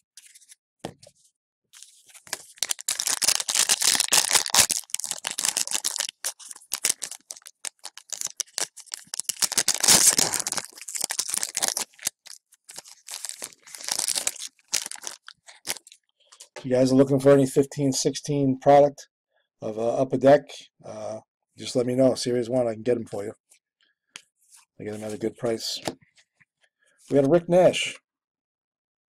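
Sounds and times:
foil wrapper crinkling: 1.8s - 16.0s.

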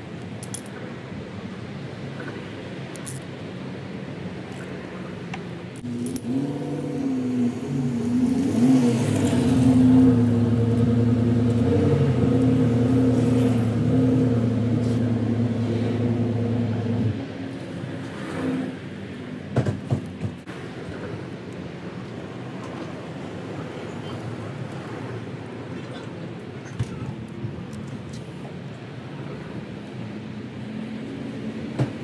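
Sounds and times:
engine running: 4.7s - 26.3s.

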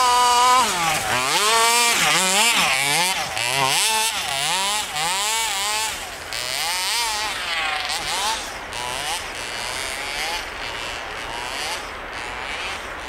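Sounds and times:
rc truck engine revving: 0.0s - 13.0s
truck churning through snow: 0.0s - 13.0s.

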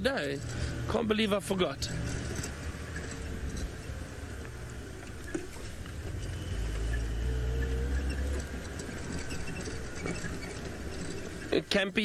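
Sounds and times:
vehicle engine rumble: 0.0s - 12.0s
vehicle rattles and knocks: 0.0s - 12.0s.

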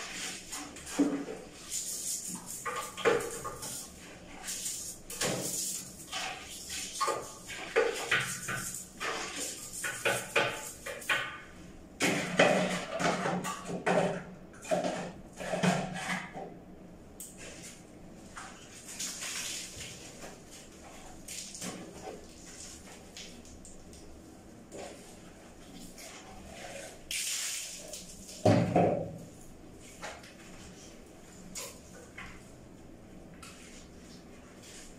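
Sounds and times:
toilet brush scrubbing a bowl: 0.0s - 11.3s, 12.1s - 16.5s, 17.4s - 23.5s, 24.2s - 28.5s, 33.4s - 34.9s.

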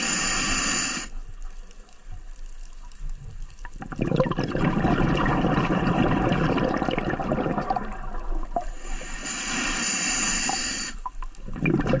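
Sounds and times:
hissing inhale through regulator: 0.0s - 1.4s, 8.6s - 11.3s
exhaled bubbles gurgling: 3.6s - 9.3s, 10.1s - 12.0s.

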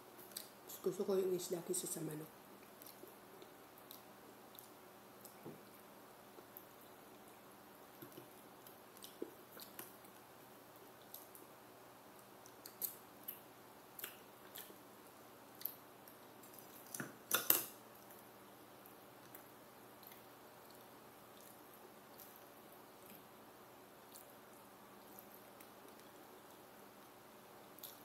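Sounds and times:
chewing: 2.6s - 7.4s, 8.0s - 10.2s, 14.0s - 14.8s, 15.6s - 17.0s, 18.8s - 23.3s, 24.0s - 24.4s, 25.0s - 27.1s, 27.7s - 28.0s.

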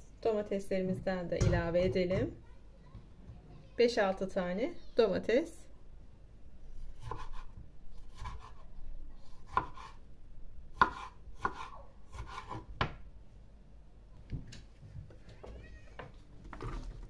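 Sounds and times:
knife chopping on wooden board: 7.0s - 8.6s, 9.4s - 10.0s, 10.8s - 13.0s.

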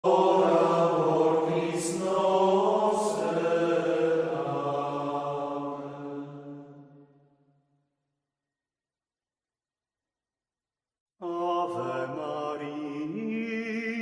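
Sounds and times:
voices singing a slow chant: 0.0s - 7.1s, 11.2s - 14.0s.

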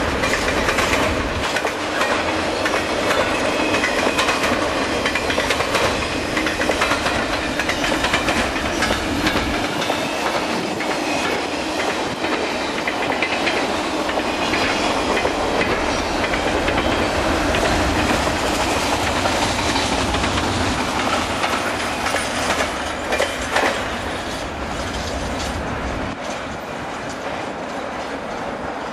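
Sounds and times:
freight train wheels clattering: 0.0s - 28.9s.

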